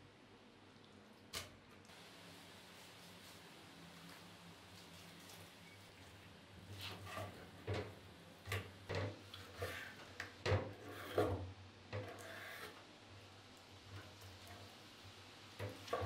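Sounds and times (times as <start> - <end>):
knife scraping: 10.8 - 11.3.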